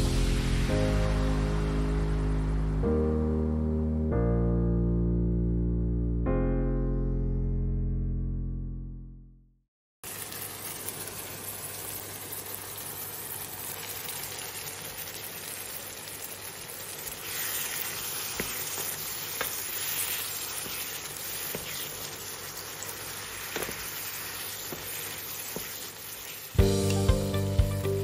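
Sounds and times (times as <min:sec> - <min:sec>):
vegetables sizzling in oil: 0:10.0 - 0:28.0.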